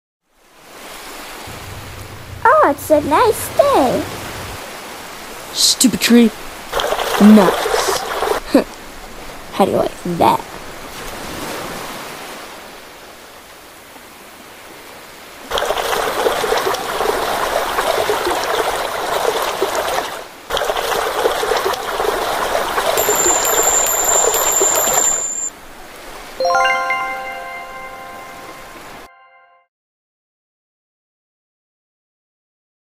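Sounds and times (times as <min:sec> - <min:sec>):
surf washing: 0:00.4 - 0:29.0
water splashing and running: 0:00.5 - 0:12.9, 0:14.6 - 0:26.4
bright chiming jingle: 0:23.0 - 0:25.5, 0:26.4 - 0:29.6.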